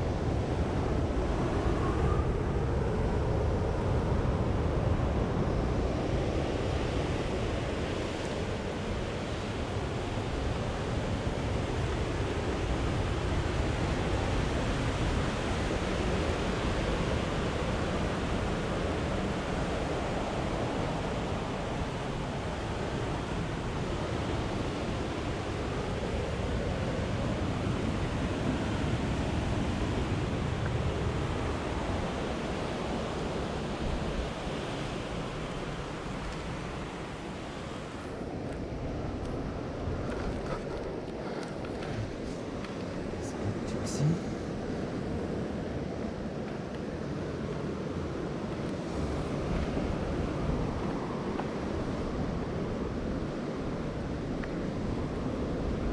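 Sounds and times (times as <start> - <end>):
wind buffeting microphone: 0.0 - 43.8
ocean surf washing against cliffs: 0.0 - 55.9.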